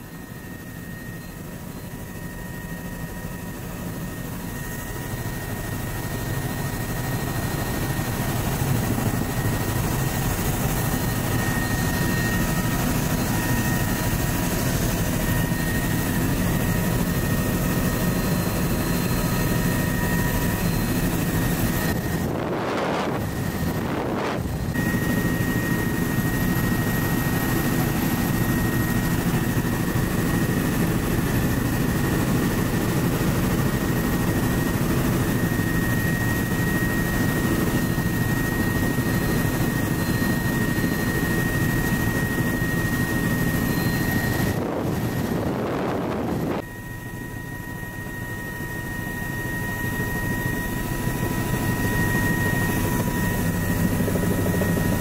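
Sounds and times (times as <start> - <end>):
helicopter rotor beat: 0.0 - 55.0
high engine whine: 3.2 - 30.5, 42.8 - 46.7
wind rush: 21.2 - 24.8, 44.1 - 46.6.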